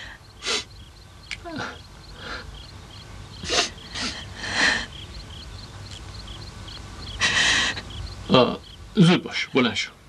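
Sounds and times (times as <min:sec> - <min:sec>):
man sobbing and sniffling: 0:03.4 - 0:05.0.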